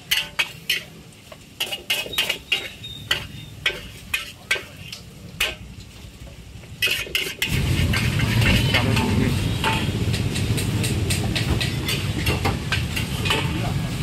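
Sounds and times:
metal ladle scraping a wok: 0:00.0 - 0:06.0, 0:06.8 - 0:14.0
frying sizzle: 0:00.0 - 0:14.0.

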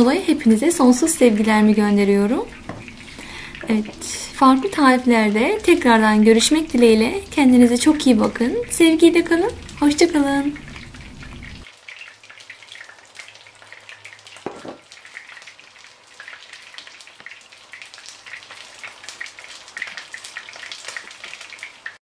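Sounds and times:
oil sizzling in a pan: 0:00.0 - 0:22.0.

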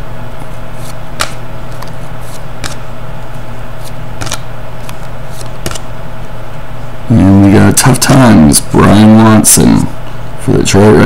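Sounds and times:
steady background hum: 0:00.0 - 0:11.0
trading cards snapping: 0:00.8 - 0:02.8, 0:03.8 - 0:05.9.

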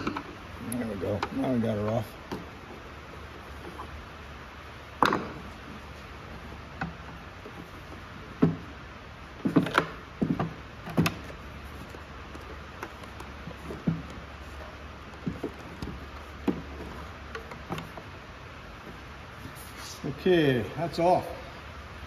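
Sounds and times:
knocks and clicks of handling parts: 0:00.0 - 0:00.4, 0:01.1 - 0:04.0, 0:04.9 - 0:05.7, 0:06.3 - 0:18.2.

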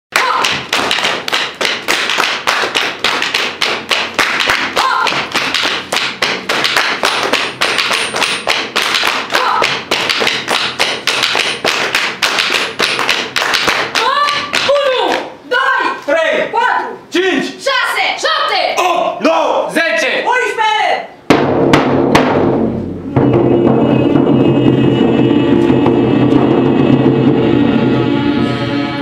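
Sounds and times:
large drum beaten with stick: 0:21.3 - 0:27.7.

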